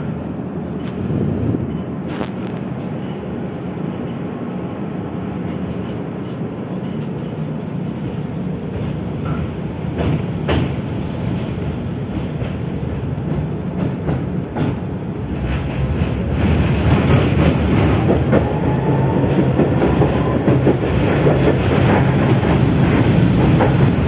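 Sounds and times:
sharp clack of tram: 0.0s - 24.0s
tram wheels rumbling on rails: 0.0s - 24.0s.

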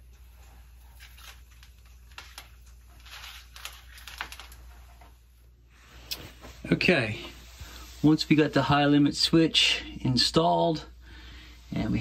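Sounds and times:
electrical cable being handled: 0.1s - 5.3s.

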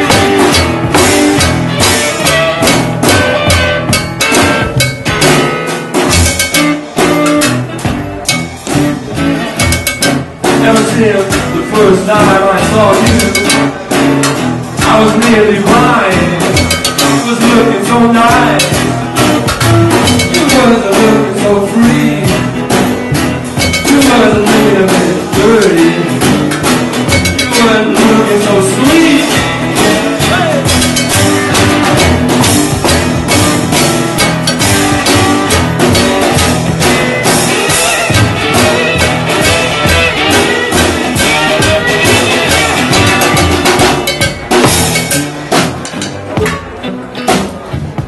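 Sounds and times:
guitar playing: 0.0s - 48.0s
handheld percussion beat: 0.0s - 48.0s
person singing: 10.4s - 13.9s, 14.8s - 22.8s, 23.6s - 30.8s.

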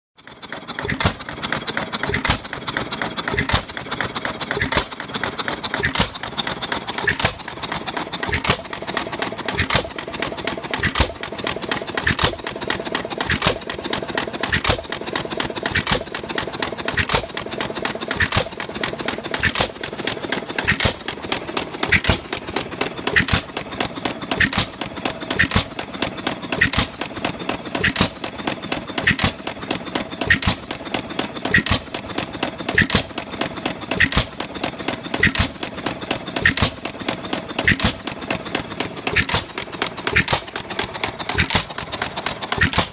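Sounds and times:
engine clicking: 0.2s - 42.9s
stationary engine bangs: 0.5s - 42.9s.

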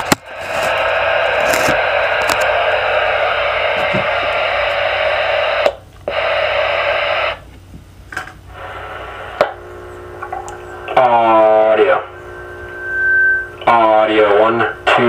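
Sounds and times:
radio static hissing: 0.0s - 15.0s
radio clicks: 1.4s - 2.6s, 9.3s - 11.5s.

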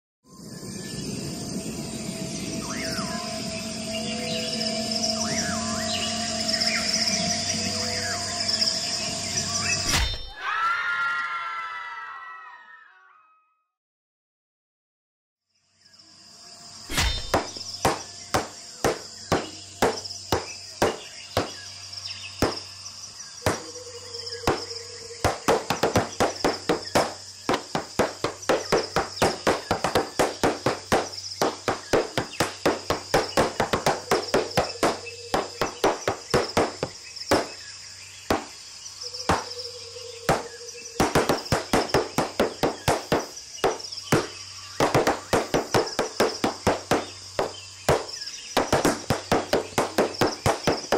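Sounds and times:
high-pitched drone: 1.5s - 9.8s
tap shoes on wooden boards: 17.3s - 21.6s, 23.4s - 23.7s, 25.2s - 37.5s, 41.0s - 50.9s.

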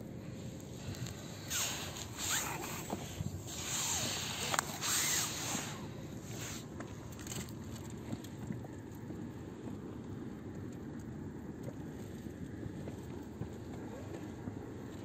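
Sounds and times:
low outdoor rumble: 0.0s - 15.0s
hiss: 0.8s - 6.7s.

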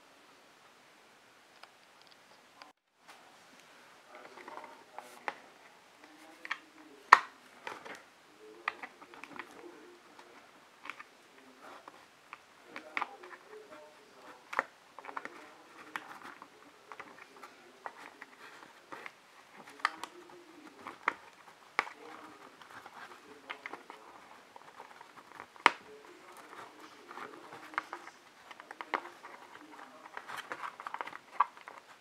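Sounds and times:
plastic strips crinkling and clicking: 8.6s - 32.0s.

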